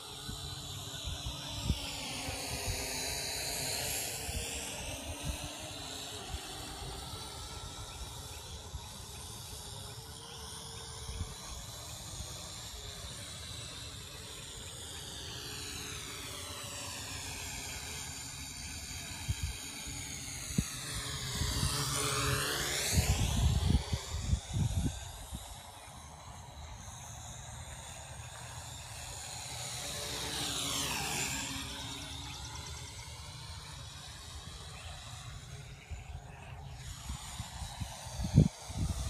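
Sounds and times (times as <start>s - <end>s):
drone motors whining: 0.0s - 39.0s
wind buffeting microphone: 22.7s - 25.6s, 36.8s - 39.0s.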